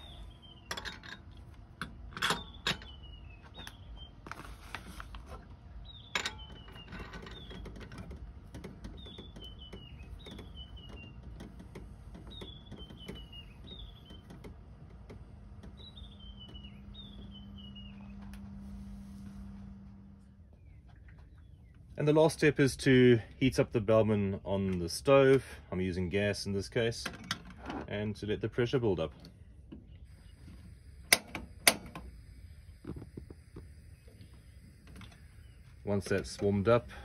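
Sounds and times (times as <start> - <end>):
metal clinks and knocks: 0.6 - 3.0, 6.0 - 8.8.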